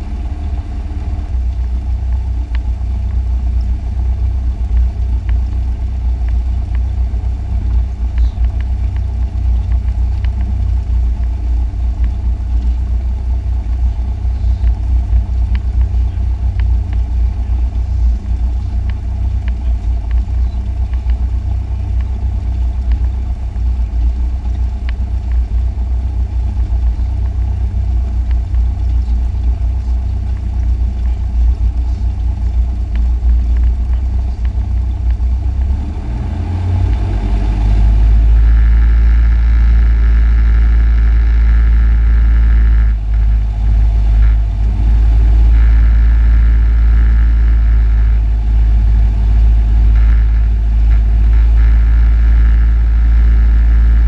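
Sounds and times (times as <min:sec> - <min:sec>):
propeller plane engine running: 0:00.0 - 0:54.0.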